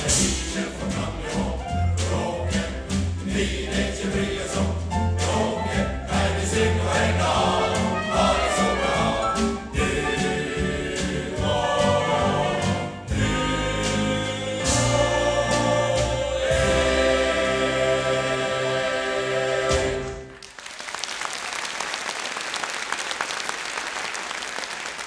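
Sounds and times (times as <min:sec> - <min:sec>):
male voice choir singing: 0:00.0 - 0:20.3.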